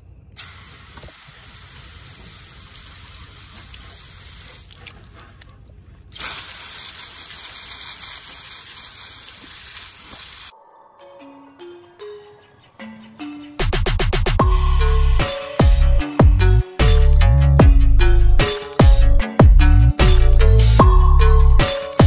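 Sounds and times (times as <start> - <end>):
water spraying: 0.4 - 5.2, 6.1 - 10.5.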